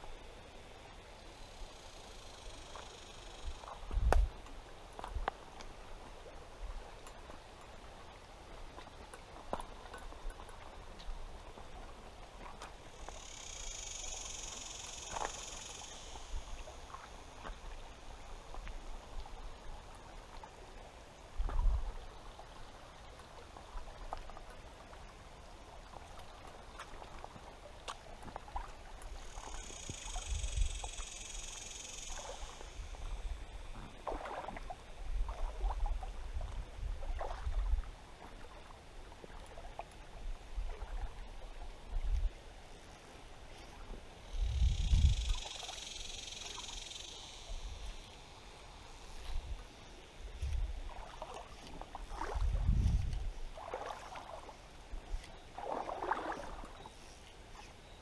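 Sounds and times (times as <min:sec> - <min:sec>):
faint water flow: 0:00.0 - 0:58.0
wind gusts on microphone: 0:03.8 - 0:04.4, 0:44.3 - 0:45.5, 0:52.0 - 0:53.8.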